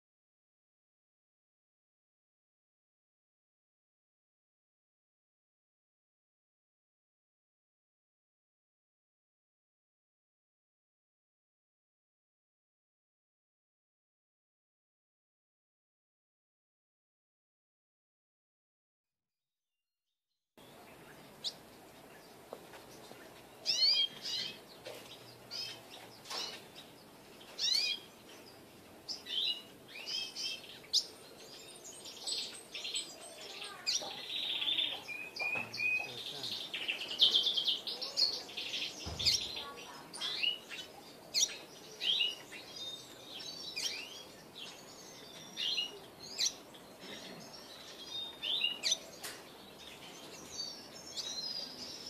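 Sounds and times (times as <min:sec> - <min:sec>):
bird chirping and trilling: 0:23.6 - 0:52.0.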